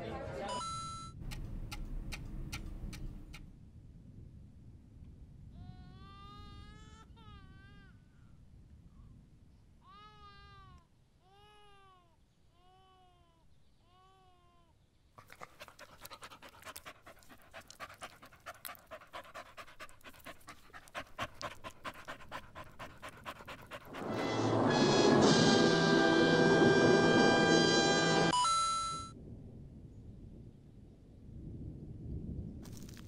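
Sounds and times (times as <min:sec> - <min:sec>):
dog whining: 0:15.2 - 0:24.1
dog panting: 0:15.2 - 0:24.6
music: 0:23.9 - 0:28.3.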